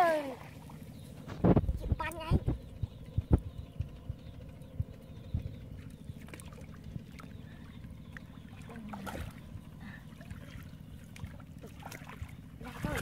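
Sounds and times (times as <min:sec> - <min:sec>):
low rumble: 0:00.8 - 0:13.0
stick sloshing through water: 0:08.2 - 0:09.5, 0:10.1 - 0:13.0.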